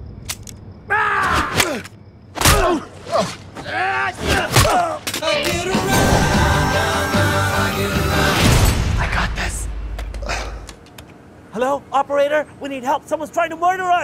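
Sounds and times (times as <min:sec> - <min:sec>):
men yelling and screaming: 0:00.9 - 0:01.8, 0:02.5 - 0:08.4.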